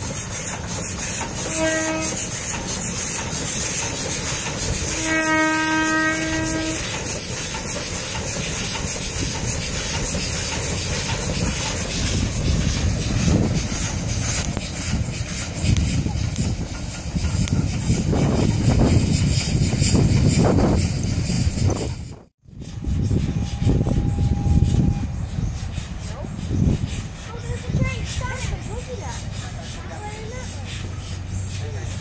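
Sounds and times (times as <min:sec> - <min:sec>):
train rumble and rail clatter: 0:00.0 - 0:32.0
steam locomotive whistle: 0:01.2 - 0:02.5, 0:04.7 - 0:07.0, 0:22.6 - 0:27.0.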